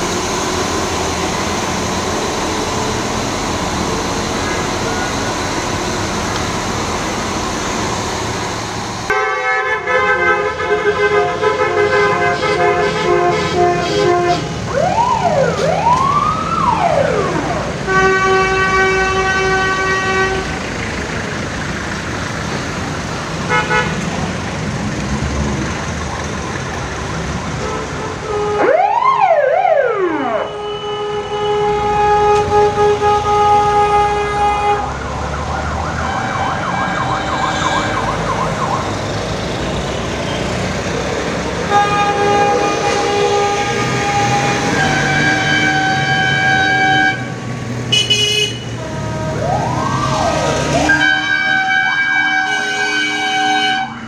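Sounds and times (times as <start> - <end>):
engine and road noise: 0.0 - 54.0
vehicle horn blasts: 9.1 - 14.5, 17.9 - 20.5, 23.5 - 24.0, 27.6 - 28.7, 30.4 - 34.9, 41.7 - 49.4, 50.8 - 54.0
siren sweeping up and down: 14.7 - 17.8, 28.6 - 32.8, 34.7 - 40.2, 49.2 - 52.5.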